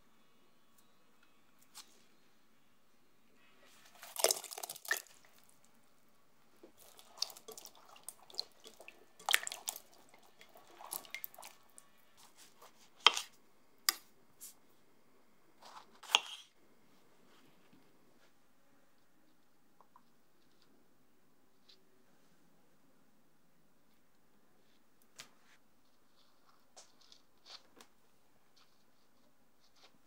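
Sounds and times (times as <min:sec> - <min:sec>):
water splashing in bowl: 0:04.0 - 0:05.5, 0:06.8 - 0:11.8.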